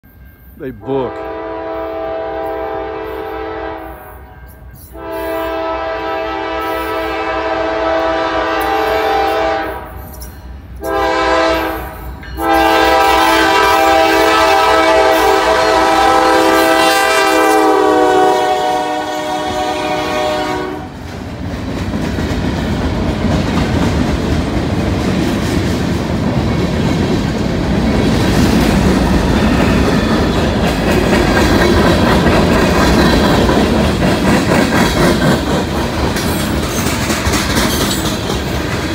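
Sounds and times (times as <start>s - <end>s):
locomotive air horn blasts: 0.9s - 4.3s, 4.9s - 10.0s, 10.8s - 21.0s
train wheels clattering over rails: 20.9s - 38.9s.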